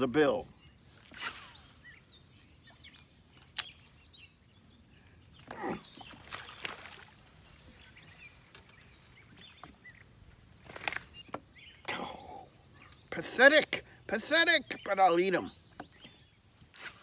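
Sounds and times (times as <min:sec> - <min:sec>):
birds chirping faintly: 0:00.0 - 0:17.0
lure splashing in water: 0:05.4 - 0:07.4.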